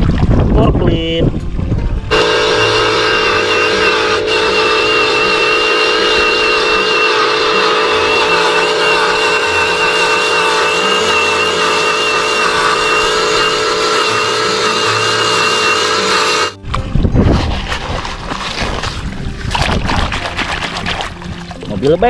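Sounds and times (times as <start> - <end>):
toy electric motor whine: 2.1 - 16.6.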